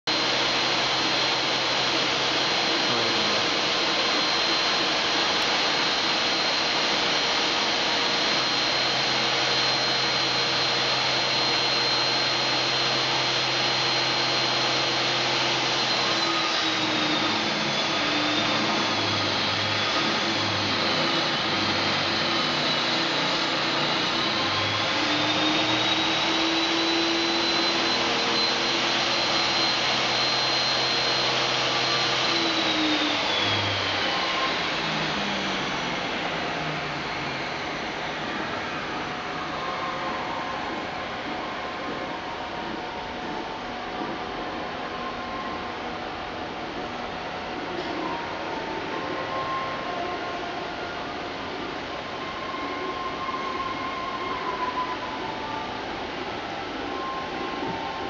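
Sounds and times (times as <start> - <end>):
model train motor whine: 0.1 - 40.8.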